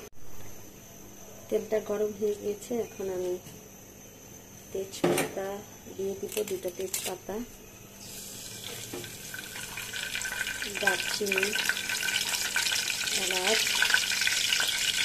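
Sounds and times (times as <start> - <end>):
spices sizzling in hot oil: 8.0 - 15.0.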